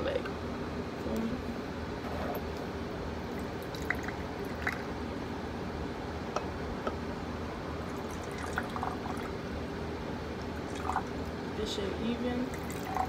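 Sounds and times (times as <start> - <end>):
liquid pouring into glass: 3.4 - 4.9, 7.8 - 9.3, 10.6 - 11.2, 12.5 - 13.0
sharp drips: 12.5 - 13.0.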